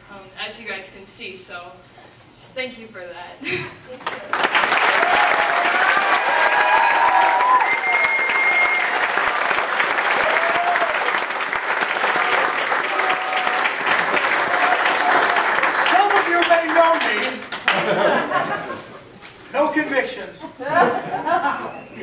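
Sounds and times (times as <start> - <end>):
crowd applauding: 4.0 - 18.5.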